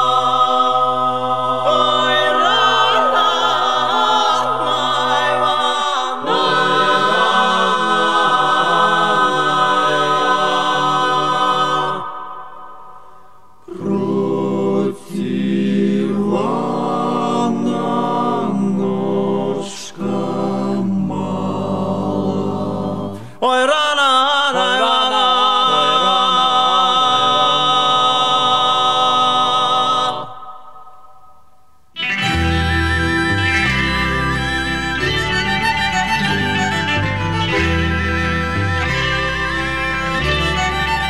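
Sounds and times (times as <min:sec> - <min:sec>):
vocal group singing in harmony: 0:00.0 - 0:31.5.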